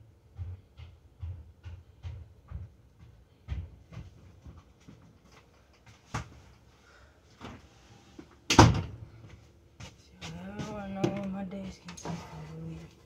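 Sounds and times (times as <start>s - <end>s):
door banging shut: 8.5s - 9.0s.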